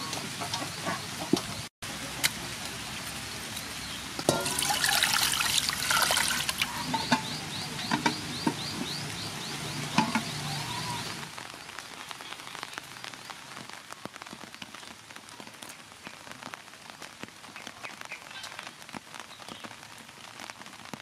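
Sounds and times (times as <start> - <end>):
water pouring into a metal pot: 4.2 - 7.3
pot knocking: 4.3 - 5.1, 10.0 - 10.4.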